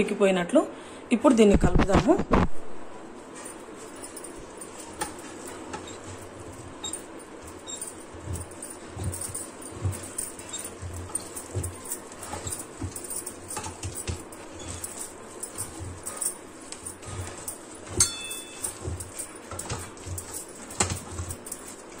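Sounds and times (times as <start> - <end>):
wooden stick scraping dough: 3.3 - 22.0
sharp clink: 17.9 - 18.8.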